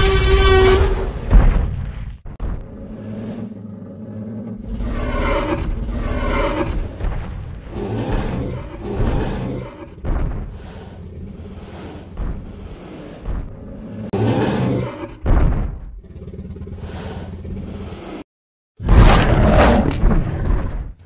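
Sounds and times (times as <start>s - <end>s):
dinosaur growls and roars: 2.4s - 21.0s.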